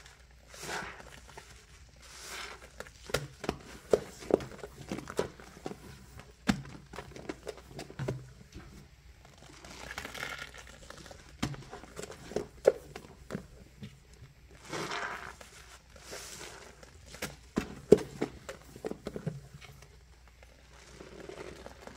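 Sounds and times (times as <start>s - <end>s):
sponge squeezed out: 0.0s - 3.7s, 9.2s - 12.2s, 14.5s - 17.4s, 20.5s - 21.9s
sponge scrubbing a steel sink: 0.0s - 4.6s, 14.6s - 17.0s.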